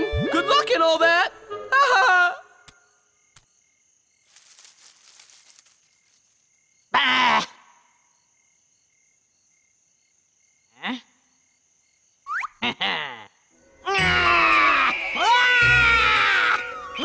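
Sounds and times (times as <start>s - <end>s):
crickets chirping: 0.9s - 17.0s
faint high insect drone: 1.2s - 17.0s
soft rustle: 4.2s - 6.6s.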